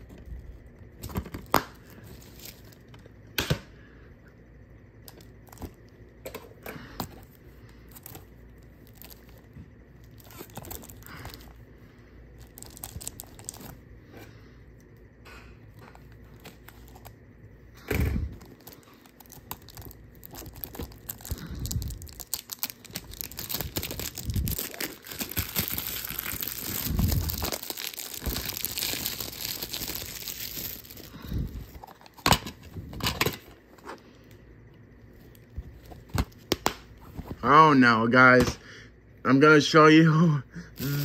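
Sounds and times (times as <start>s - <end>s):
plastic wrap tearing and crinkling: 8.8s - 9.4s, 10.0s - 11.4s, 12.4s - 13.8s, 18.6s - 31.8s, 40.8s - 41.0s.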